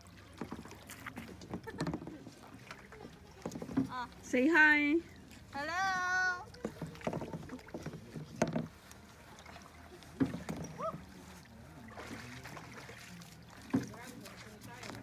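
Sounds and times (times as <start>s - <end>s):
hollow knocks on plastic kayak: 6.6s - 8.8s, 10.2s - 10.8s, 13.7s - 14.0s.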